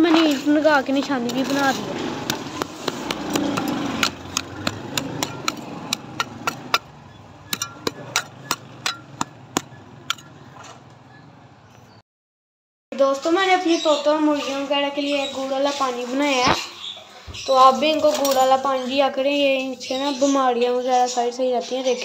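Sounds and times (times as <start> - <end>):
sharp knocks on brick and stone: 2.2 - 10.4.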